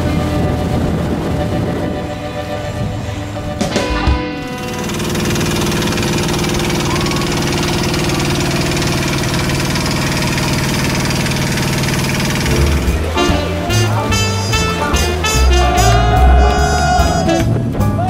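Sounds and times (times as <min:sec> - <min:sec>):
music: 0:00.0 - 0:07.3, 0:12.4 - 0:18.0
boat engine running: 0:00.0 - 0:18.0.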